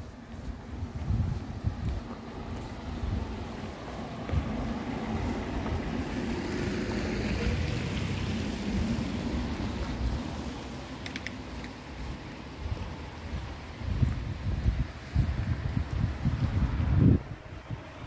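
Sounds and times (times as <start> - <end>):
wind rumble on microphone: 0.0 - 18.0
tyre hiss on wet road: 2.0 - 13.8.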